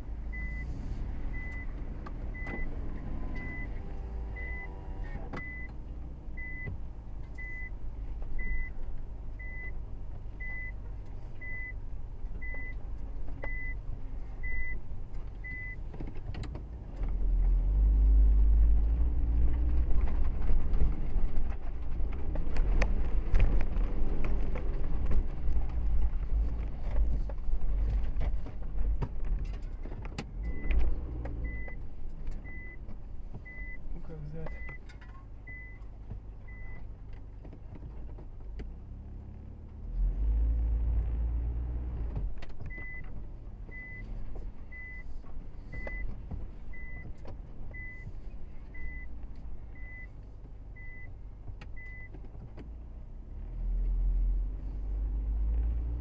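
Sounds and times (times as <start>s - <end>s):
car engine running: 0.0s - 56.0s
car body knocking and rattling: 19.5s - 33.6s, 42.0s - 49.8s.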